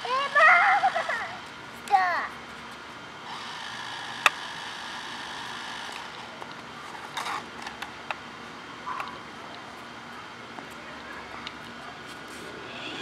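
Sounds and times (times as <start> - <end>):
toy car motor whirring: 0.0 - 2.3, 3.2 - 7.9.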